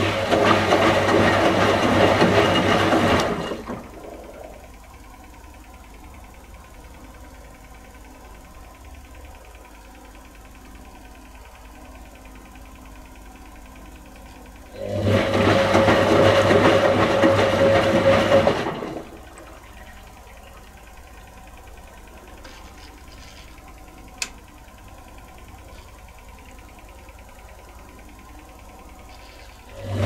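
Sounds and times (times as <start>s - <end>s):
washing machine drum tumbling: 0.0s - 4.7s, 14.8s - 20.2s
low steady hum: 3.2s - 15.4s, 18.7s - 30.0s.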